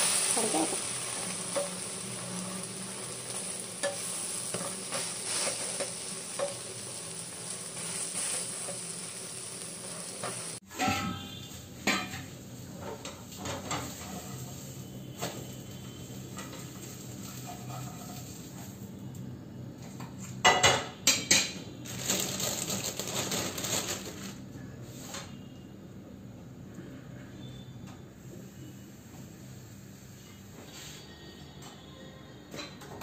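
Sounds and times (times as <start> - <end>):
omelette sizzling in a frying pan: 0.0 - 10.6, 11.8 - 18.9
spatula scraping and knocking pan: 0.0 - 11.0.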